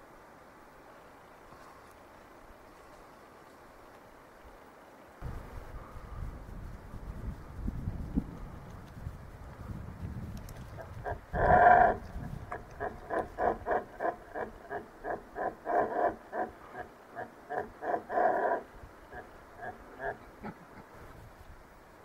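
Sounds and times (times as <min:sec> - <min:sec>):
elk bull calling: 0:10.8 - 0:20.6
short grunting calls: 0:11.0 - 0:20.6.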